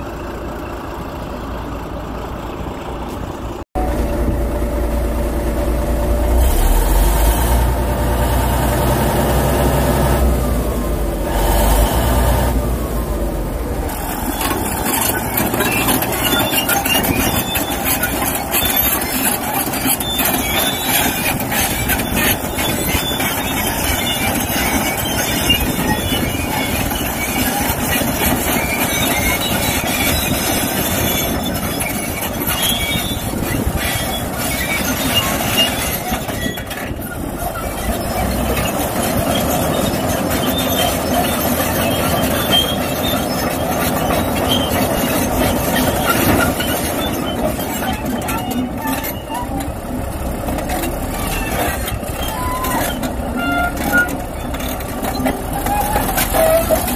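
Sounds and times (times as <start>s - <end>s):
diesel engine running: 0.0s - 56.9s
steel tracks clattering: 13.6s - 56.9s.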